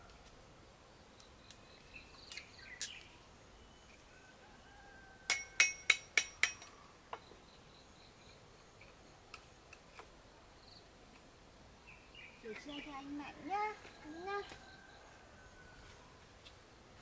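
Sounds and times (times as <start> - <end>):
sharp ringing metal strikes: 5.3 - 6.7.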